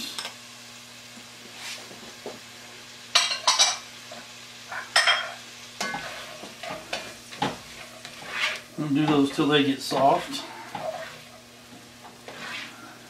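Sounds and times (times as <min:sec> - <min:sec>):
vegetables frying quietly: 0:00.0 - 0:13.0
spoon scraping pot bottom: 0:12.2 - 0:12.7.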